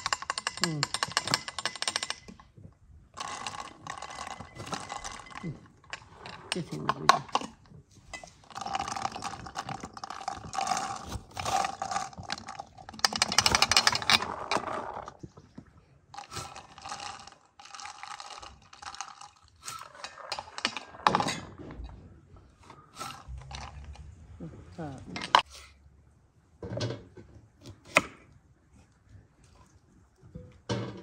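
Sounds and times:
seeds rattling in glass bottles: 0.0s - 2.4s, 3.2s - 15.2s, 16.2s - 21.5s.

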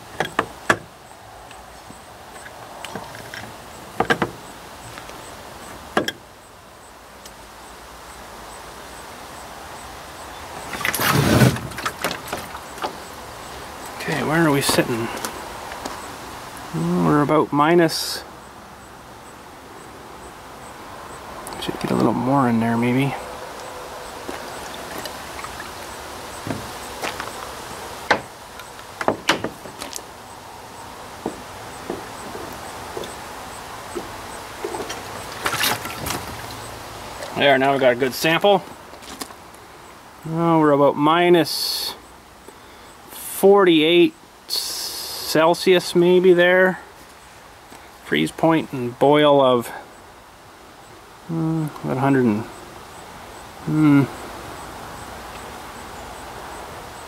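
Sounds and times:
faint steady hiss: 0.0s - 57.0s
jug handling clicks and knocks: 2.4s - 4.4s.

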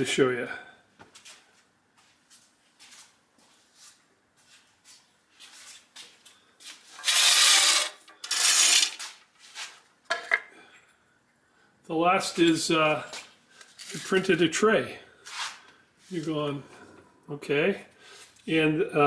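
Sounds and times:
loud rubbing scraping: 7.0s - 9.1s.

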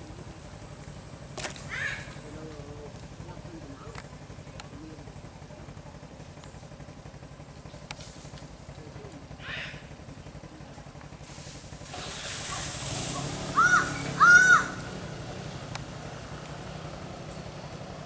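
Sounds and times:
motorcycle engine idling: 0.0s - 18.0s
hiss: 11.2s - 13.6s.

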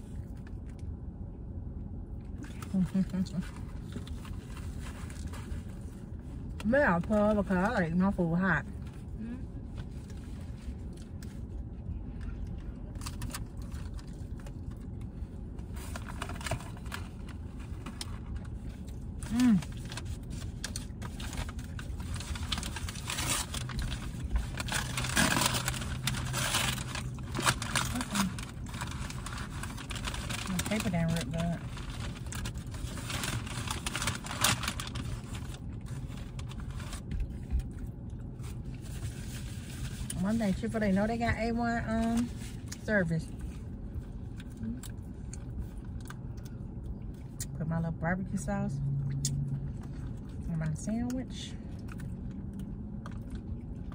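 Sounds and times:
car cabin low rumble: 0.0s - 53.9s
steady low hum: 0.0s - 53.9s
food wrappers rustling: 12.9s - 40.7s.

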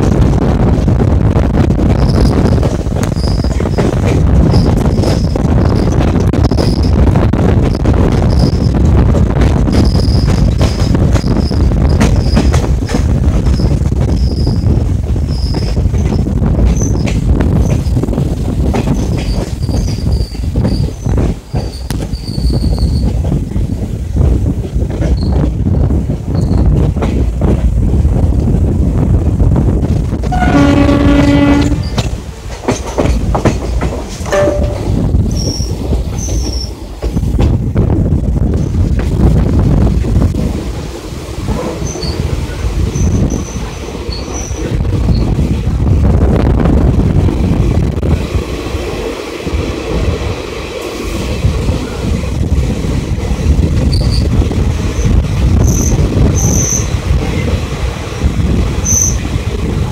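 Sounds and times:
train wheels clacking on rails: 0.0s - 28.4s, 29.8s - 46.3s
wind rushing: 0.0s - 59.9s
high-pitched wheel squeals: 3.2s - 3.6s, 13.6s - 14.7s, 19.3s - 23.1s
train horn: 30.2s - 31.9s, 34.3s - 35.0s.

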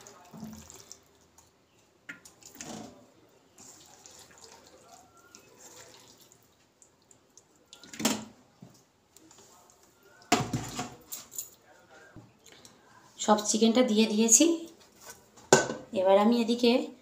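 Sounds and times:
wet chicken pieces sliding: 3.6s - 6.5s
knock on pot: 15.5s - 15.9s.

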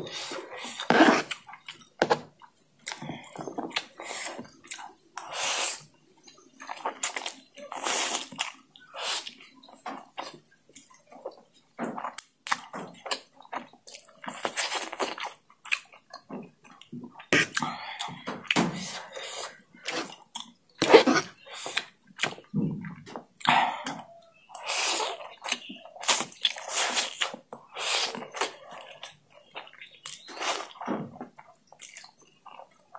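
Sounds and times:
slurping noodles: 0.0s - 1.4s
wet chewing: 0.1s - 32.9s.

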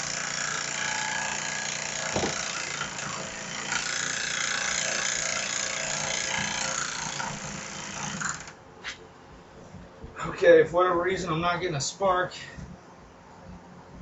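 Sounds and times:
small engine turning over: 8.1s - 8.5s.

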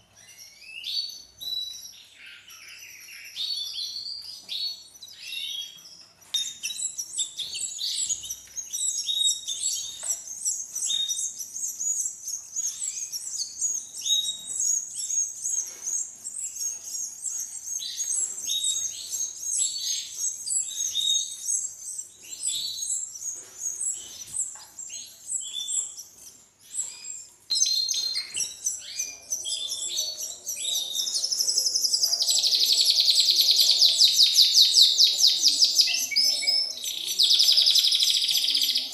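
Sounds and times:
chicks chirping rapidly: 6.5s - 38.9s.

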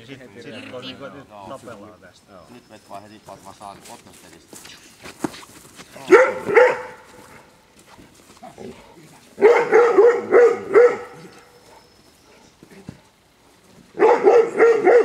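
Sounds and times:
dog barking: 6.0s - 7.5s, 9.4s - 11.8s, 14.0s - 15.0s.

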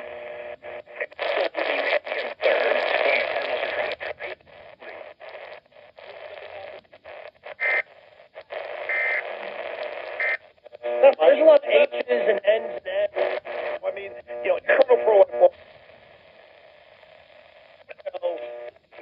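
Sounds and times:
radio static hiss: 0.0s - 19.0s
high radio whistles: 8.5s - 11.0s.

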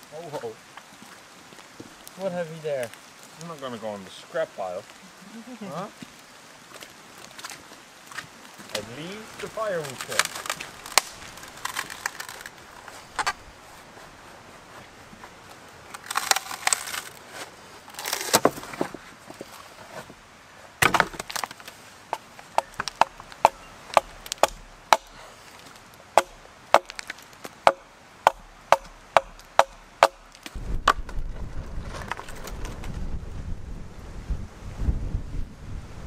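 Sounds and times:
wood cracking and splintering: 6.7s - 13.4s, 15.8s - 20.1s, 20.8s - 33.1s
wind gusts on microphone: 30.5s - 36.0s.

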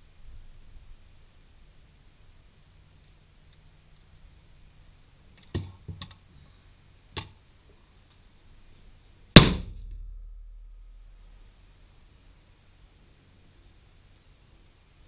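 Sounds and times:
loud rifle shot: 9.4s - 10.3s.

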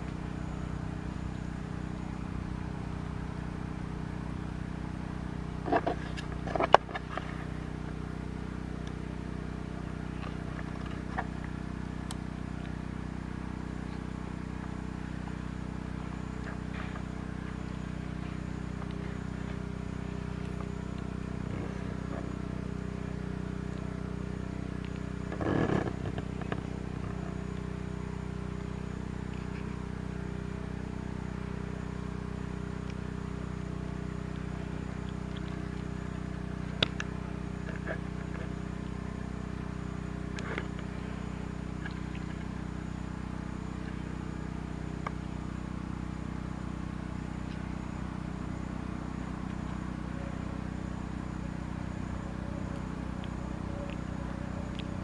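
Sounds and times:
faint high whine: 0.0s - 55.0s
low motor hum: 0.0s - 55.0s.

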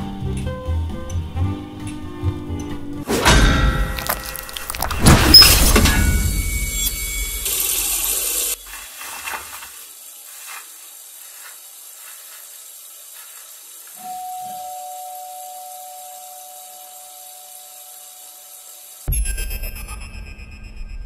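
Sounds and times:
steady hiss: 5.6s - 19.6s
paper tissue rustling: 7.9s - 14.2s
two-note electronic tone: 14.0s - 18.5s.

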